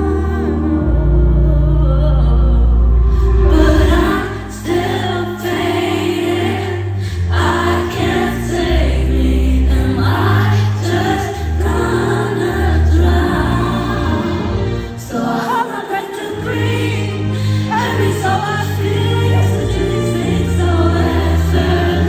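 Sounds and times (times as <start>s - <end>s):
woman singing: 0.0s - 6.8s
crowd singing along: 0.0s - 22.0s.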